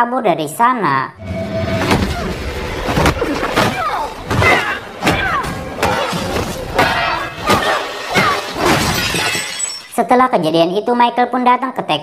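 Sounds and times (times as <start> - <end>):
fighters grunting and crying out: 1.9 - 8.9
punches and body blows: 2.8 - 9.2.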